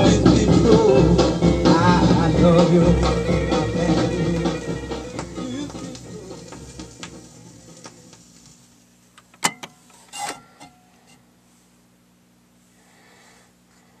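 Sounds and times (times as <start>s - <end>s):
song playing on record: 0.0s - 8.2s.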